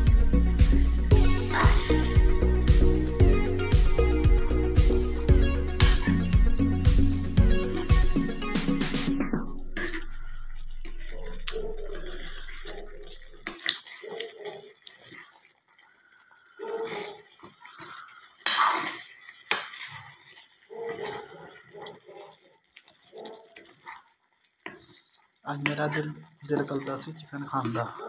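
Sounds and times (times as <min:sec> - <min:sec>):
music: 0:00.0 - 0:10.2
curry bubbling: 0:00.0 - 0:28.0
spatula scraping metal pan: 0:01.2 - 0:14.2, 0:16.9 - 0:21.2.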